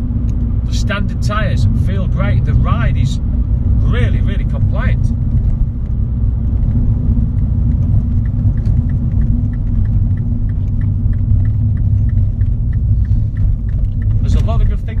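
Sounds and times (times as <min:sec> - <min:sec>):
car engine and road rumble: 0:00.0 - 0:15.0
light even ticking: 0:06.6 - 0:15.0.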